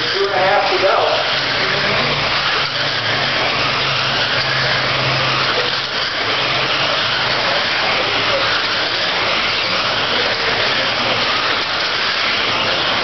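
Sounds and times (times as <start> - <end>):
radio-controlled cars whirring: 0.0 - 13.0.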